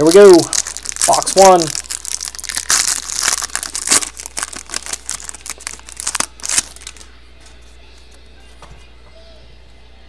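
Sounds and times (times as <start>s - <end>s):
plastic wrapping crinkling: 0.0s - 7.1s.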